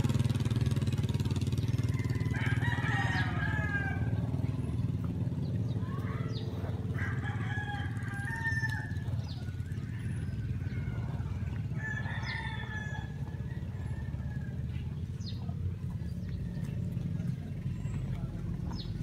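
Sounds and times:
rooster crowing: 0:01.6 - 0:04.4, 0:06.8 - 0:14.8.

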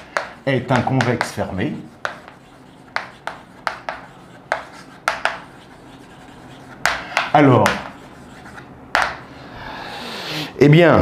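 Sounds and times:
chalk tapping and scraping on blackboard: 0:00.0 - 0:09.3.

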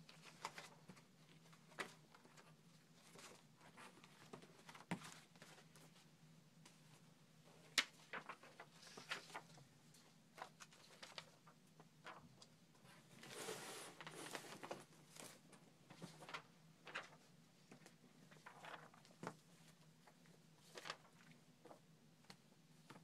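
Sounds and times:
paper rustling: 0:00.0 - 0:06.0, 0:07.6 - 0:09.6, 0:10.3 - 0:21.8
paper sliding: 0:13.2 - 0:14.8.

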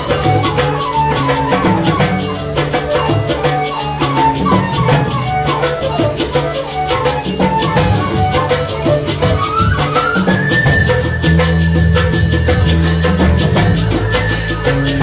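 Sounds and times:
music with percussion beat: 0:00.0 - 0:15.0.

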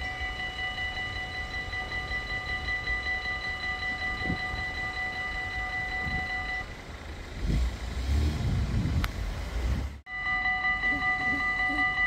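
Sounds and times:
level crossing warning bell ringing: 0:00.0 - 0:07.2, 0:10.1 - 0:12.0
vehicle engine rumbling: 0:00.0 - 0:12.0.

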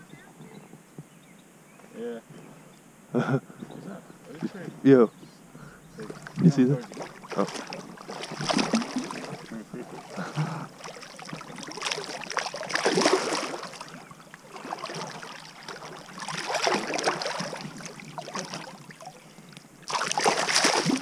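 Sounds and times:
splashing in shallow water: 0:06.0 - 0:21.0.

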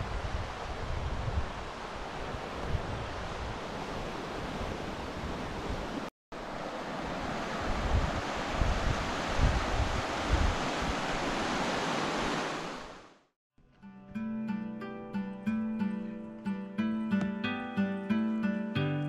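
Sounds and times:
wind buffeting microphone: 0:00.0 - 0:06.1, 0:06.8 - 0:12.5
rushing mountain stream: 0:00.0 - 0:13.2.

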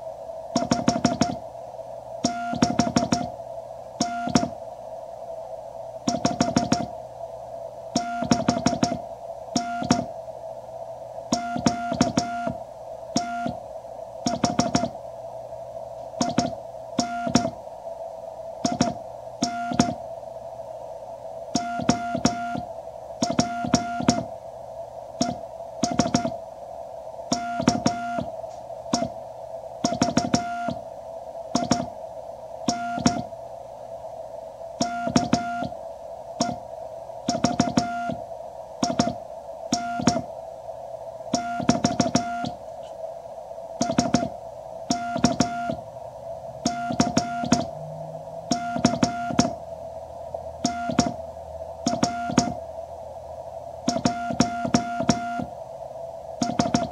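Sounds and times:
receiver hiss: 0:00.0 - 0:56.9
morse code sidetone beeps: 0:50.6 - 0:51.2, 0:53.9 - 0:55.5.

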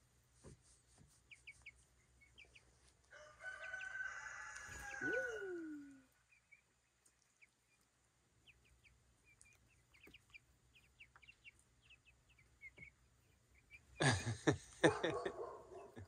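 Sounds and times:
chicks peeping softly: 0:00.0 - 0:16.0.

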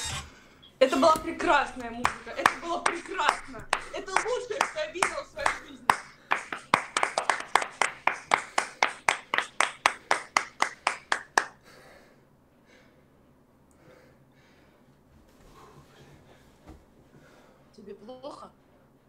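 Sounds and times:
person clapping hands: 0:01.4 - 0:11.6.

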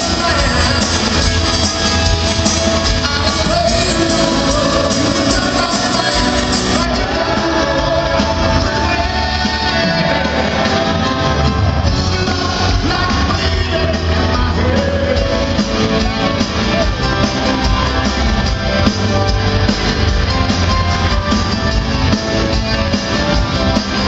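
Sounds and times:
lead vocal singing: 0:00.0 - 0:18.5
electric guitar: 0:00.0 - 0:24.0
grand piano: 0:00.0 - 0:24.0
live rock band playing: 0:00.0 - 0:24.0.

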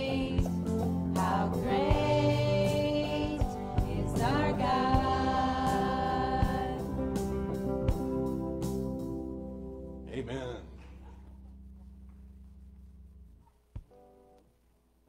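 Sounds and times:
women singing: 0:00.0 - 0:07.1
drum kit: 0:00.0 - 0:09.1
bass guitar: 0:00.0 - 0:14.2.

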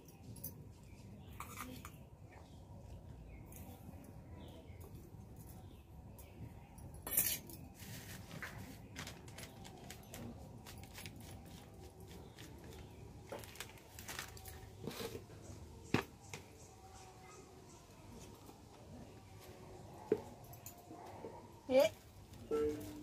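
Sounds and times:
plastic packet crinkling: 0:12.4 - 0:14.9.

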